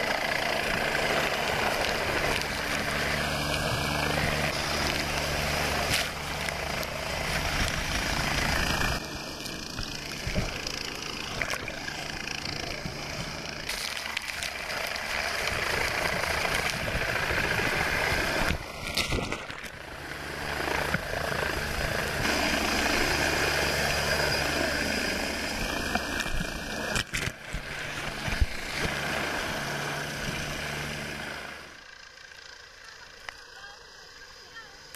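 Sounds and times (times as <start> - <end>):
helicopter rotor noise: 0.0 - 34.9
wind buffeting: 14.5 - 24.6.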